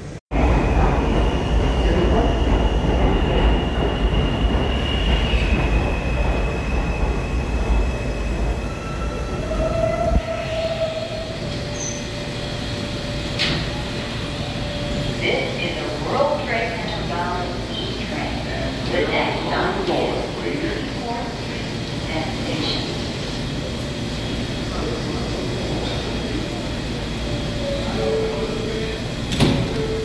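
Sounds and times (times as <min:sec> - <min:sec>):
subway train rumbling: 0:00.0 - 0:30.0
train wheels squealing: 0:01.1 - 0:12.3.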